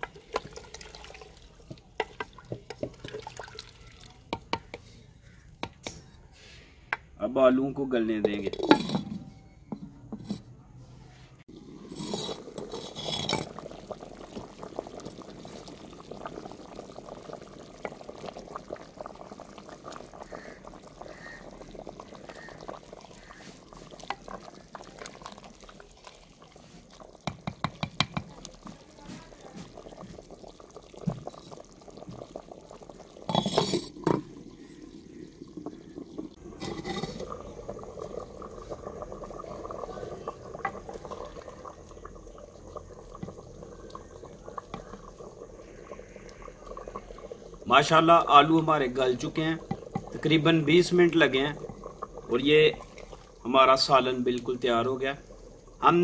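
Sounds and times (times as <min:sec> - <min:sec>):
curry simmering and bubbling: 0:00.0 - 0:07.1, 0:11.4 - 0:56.0
wooden ladle knocking: 0:01.7 - 0:03.1, 0:04.3 - 0:04.8, 0:27.2 - 0:28.4.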